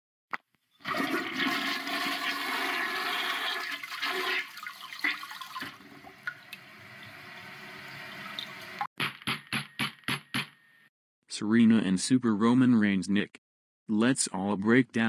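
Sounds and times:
toilet flushing: 0:00.8 - 0:08.9.

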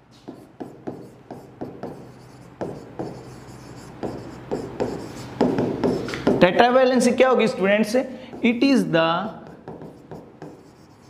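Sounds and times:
pen tapping and scratching on glass: 0:00.3 - 0:06.5, 0:09.4 - 0:11.0.

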